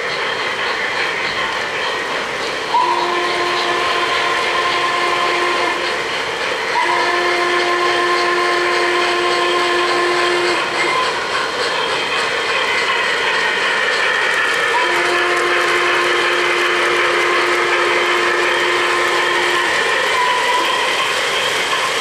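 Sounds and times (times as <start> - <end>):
model train running noise: 0.0 - 22.0
model steam locomotive whistle: 2.7 - 6.1, 6.7 - 11.3, 12.8 - 21.4.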